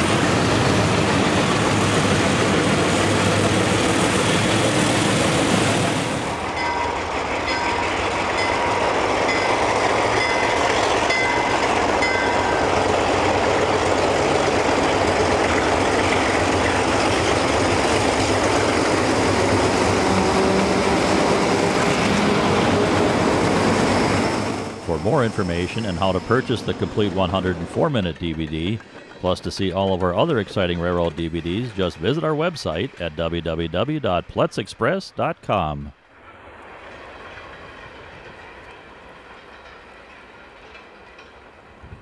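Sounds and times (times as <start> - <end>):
diesel locomotives passing: 0.0 - 42.0
diesel locomotives working hard: 0.0 - 42.0
wheels clattering over rail joints: 36.2 - 41.8.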